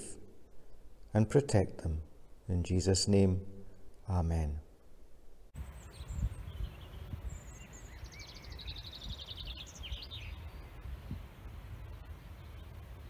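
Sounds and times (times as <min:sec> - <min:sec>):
songbird trilling: 0:05.6 - 0:11.1
bird chirps: 0:05.6 - 0:11.3
wind rumble on microphone: 0:05.6 - 0:13.0.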